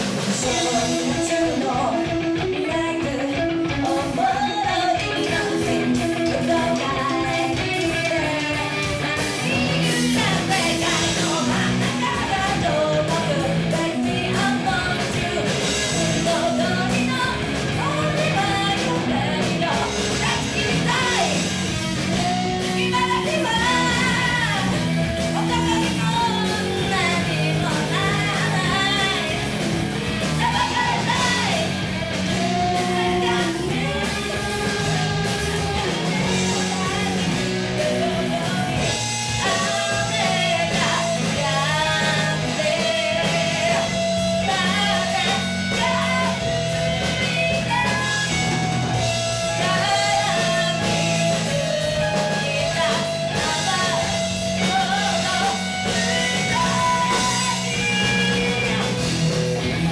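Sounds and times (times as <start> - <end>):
rock band playing: 0.0 - 59.9
woman singing: 0.0 - 59.9.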